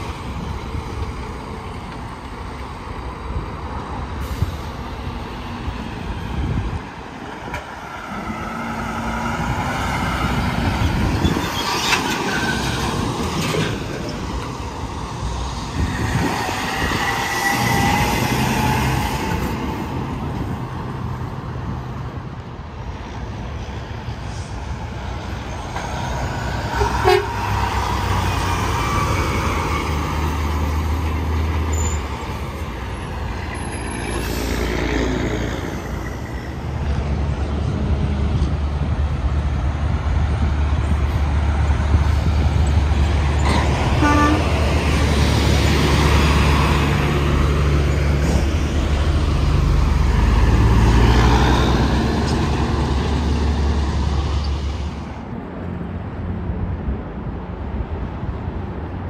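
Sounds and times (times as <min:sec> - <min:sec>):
heavy trucks passing: 0:00.0 - 0:59.0
truck horn tooting: 0:26.7 - 0:27.5, 0:44.0 - 0:44.6.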